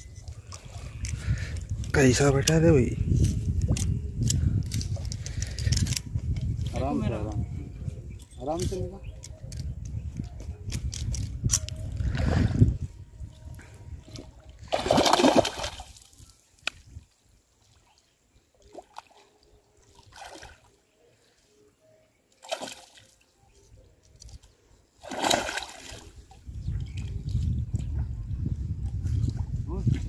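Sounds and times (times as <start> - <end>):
fish splashing in water: 14.7 - 16.1, 25.0 - 26.2.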